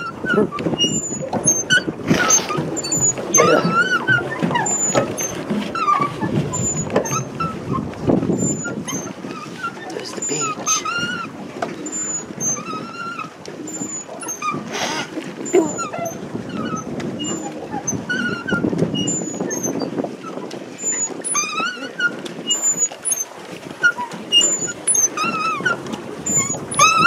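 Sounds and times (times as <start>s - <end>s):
paddle wheel churning water: 0.0s - 27.0s
pedal drive squeaking: 0.0s - 27.0s.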